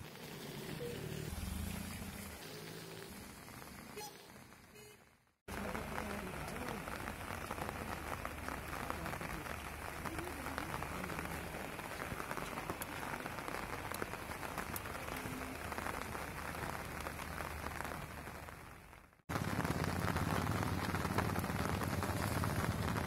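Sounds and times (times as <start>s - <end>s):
rain pattering: 0.0s - 23.0s.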